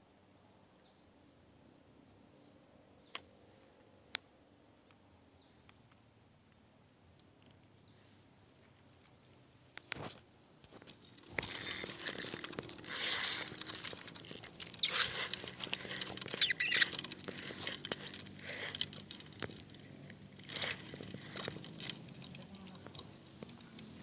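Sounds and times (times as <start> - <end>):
fishing reel clicking rattle: 11.1 - 19.7.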